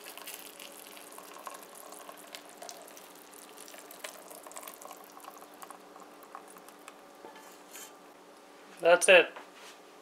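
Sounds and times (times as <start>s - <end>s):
hot glaze sizzling and crackling: 0.0s - 8.0s.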